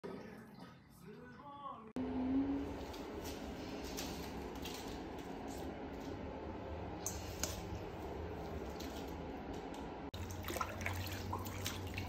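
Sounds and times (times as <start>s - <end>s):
low room hum: 0.4s - 12.0s
faint splashing: 10.1s - 12.0s.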